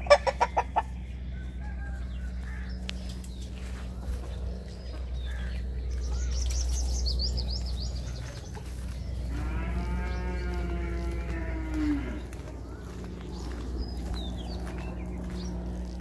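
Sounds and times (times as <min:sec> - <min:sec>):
small birds chirping: 0:00.0 - 0:16.0
steady low hum: 0:00.0 - 0:16.0
cow mooing: 0:09.2 - 0:12.4.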